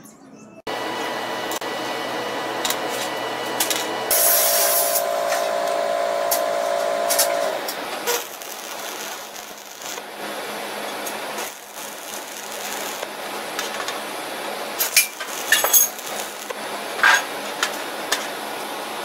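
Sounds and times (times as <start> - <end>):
welding arc crackling hiss: 0.7 - 18.8
sharp welding pops: 6.2 - 14.0, 14.8 - 18.3.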